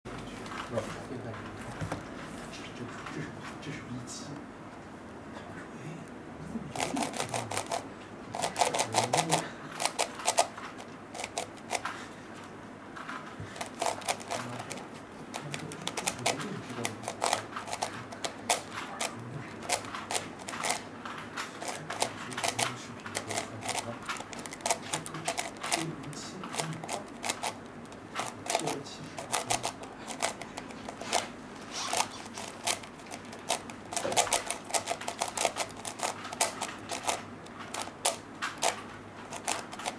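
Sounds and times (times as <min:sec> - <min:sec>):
puzzle cube clicking: 0:06.7 - 0:12.0, 0:13.6 - 0:39.9.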